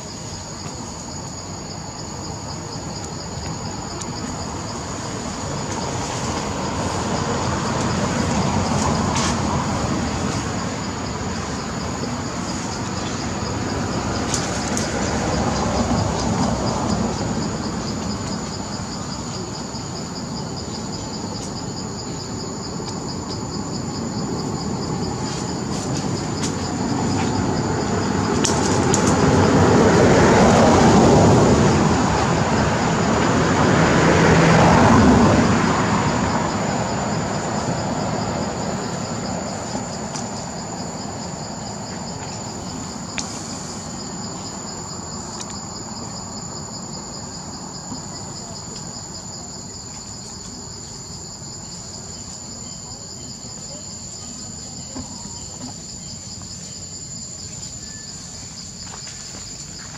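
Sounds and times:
insects droning: 0.0s - 59.9s
broad rushing noise: 2.4s - 20.6s, 21.3s - 46.2s.

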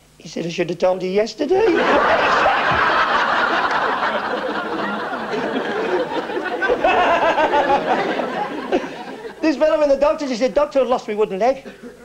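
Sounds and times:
studio audience laughing: 1.6s - 9.6s.

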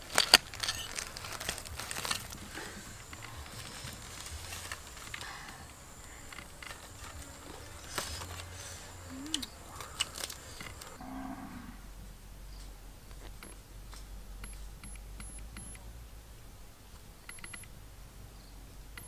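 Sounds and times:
short animal calls: 7.2s - 11.9s.

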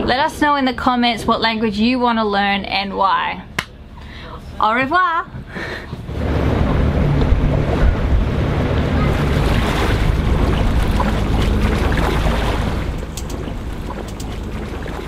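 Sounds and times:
low steady hum: 0.0s - 15.0s
wind buffeting microphone: 5.3s - 15.0s
water rushing past hull: 5.8s - 15.0s.

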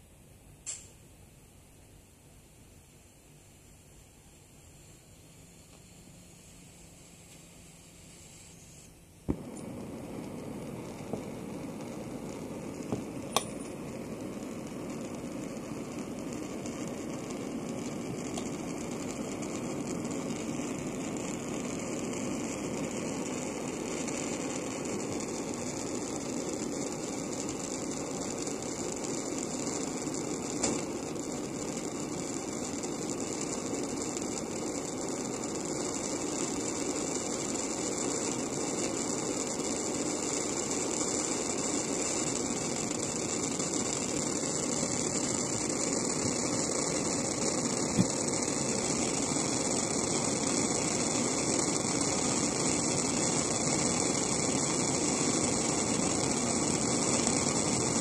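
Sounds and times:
short click: 0.6s - 0.9s
blowtorch flame hissing: 4.6s - 58.0s.

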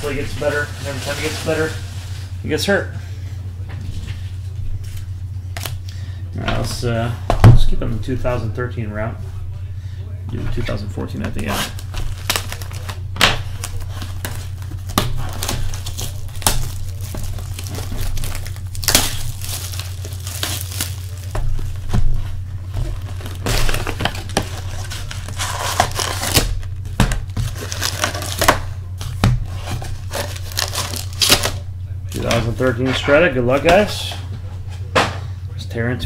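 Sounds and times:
shrink-wrap crinkling and tearing: 0.0s - 2.4s, 11.3s - 32.8s
foil packs rustling: 0.0s - 3.3s, 10.4s - 34.9s
steady low hum: 0.0s - 36.0s.

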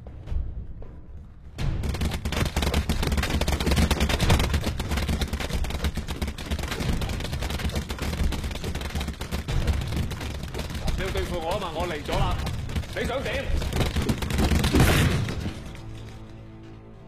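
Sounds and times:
speed bag rattling: 1.8s - 16.1s.

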